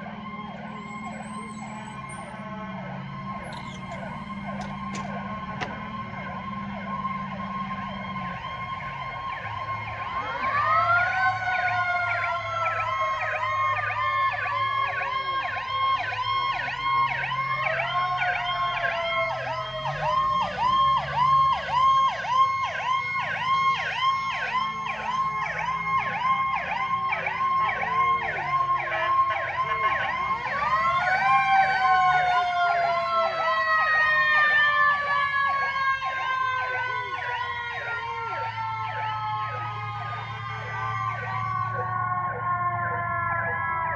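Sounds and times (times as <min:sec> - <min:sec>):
rapid warbling siren: 0:00.0 - 0:43.9
siren sweeping up and falling: 0:00.0 - 0:43.9.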